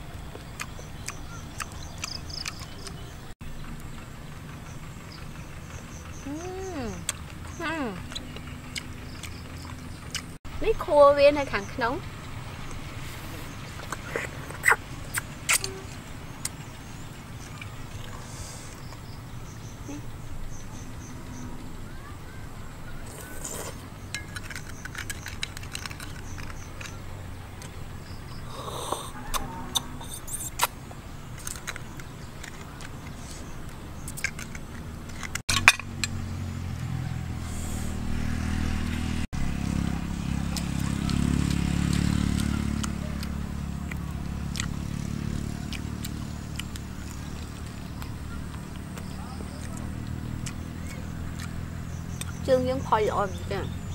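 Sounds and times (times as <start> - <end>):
low engine drone: 0.0 - 53.9
chewing: 0.1 - 3.1, 7.0 - 10.4, 12.6 - 16.6, 17.4 - 19.1, 23.0 - 27.0, 31.4 - 35.4, 40.5 - 52.4.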